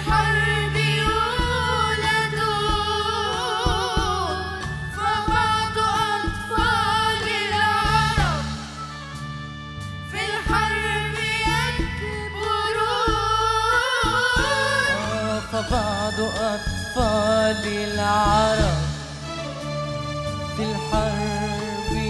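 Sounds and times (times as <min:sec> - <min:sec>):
young singers singing a ballad: 0:00.0 - 0:08.9, 0:10.1 - 0:19.4
instrumental backing: 0:00.0 - 0:22.0.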